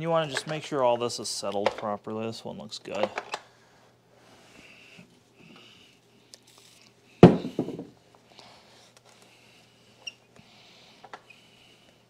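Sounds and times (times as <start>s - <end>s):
sharp knock on plastic: 7.2s - 7.9s.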